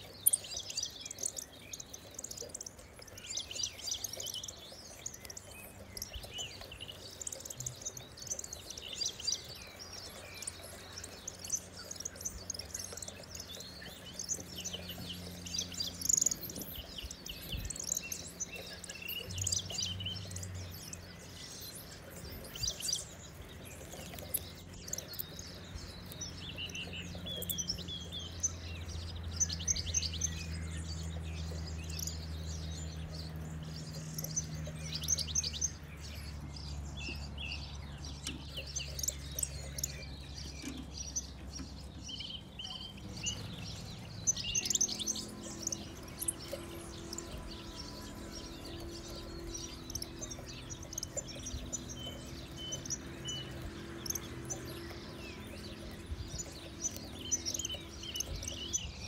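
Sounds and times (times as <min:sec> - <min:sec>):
birds twittering and chirping: 0:00.0 - 0:59.0
low steady hum: 0:00.0 - 0:59.0.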